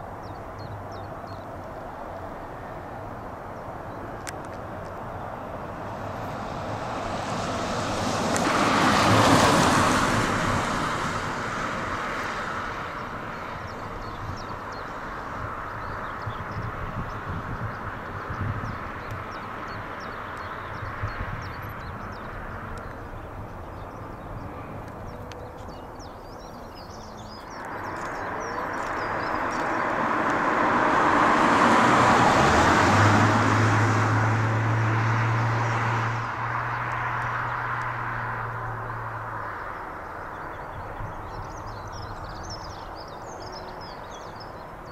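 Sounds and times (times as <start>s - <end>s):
birds chirping: 0.0s - 8.4s, 10.7s - 32.9s, 36.6s - 44.9s
jet engines roaring: 27.5s - 33.8s.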